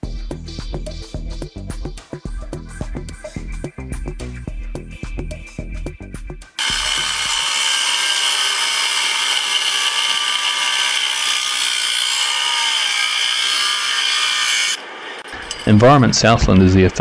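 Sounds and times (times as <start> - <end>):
power tool working into rock: 6.6 - 15.8.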